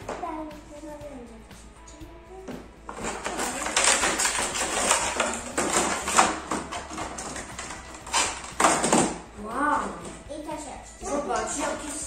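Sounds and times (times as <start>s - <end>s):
plastic packaging crackling: 2.9s - 9.2s.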